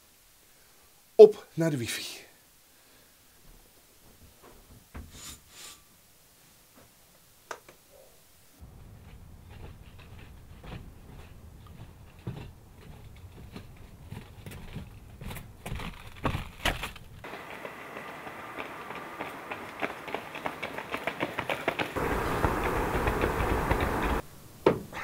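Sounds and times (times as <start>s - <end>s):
low outdoor rumble: 8.6s - 16.1s, 17.0s - 24.6s
footsteps on roof tiles: 8.6s - 24.2s.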